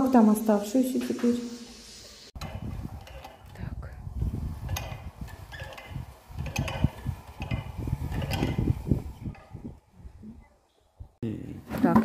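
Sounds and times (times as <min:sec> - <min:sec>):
windlass metallic clicks and knocks: 0:02.4 - 0:09.9.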